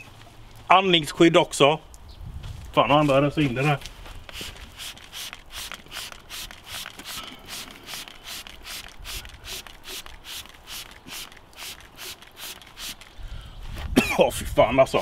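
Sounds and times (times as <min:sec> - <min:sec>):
spray bottle squirting: 0:04.3 - 0:13.2.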